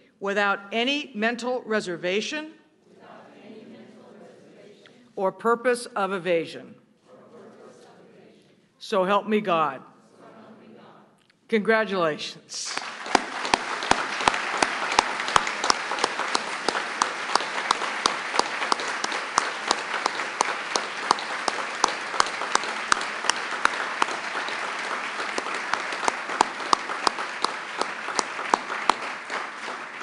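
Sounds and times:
audience applauding: 12.6 - 30.0.

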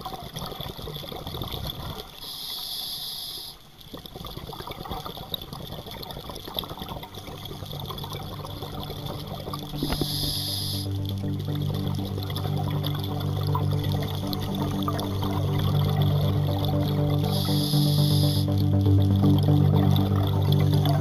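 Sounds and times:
scuba regulator hissing: 17.3 - 18.5.

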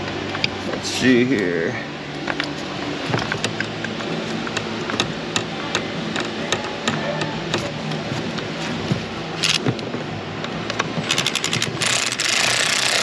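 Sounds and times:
ratchet wrench clicking: 11.1 - 13.0.

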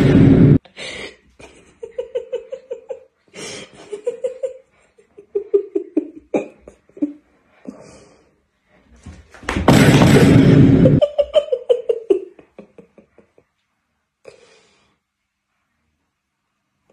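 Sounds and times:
person laughing: 0.8 - 7.2, 10.6 - 13.4.

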